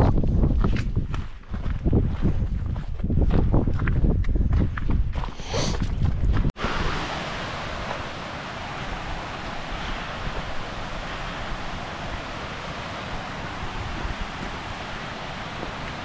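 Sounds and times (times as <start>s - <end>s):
wind buffeting microphone: 0.0s - 16.0s
stream rushing over rocks: 6.6s - 16.0s.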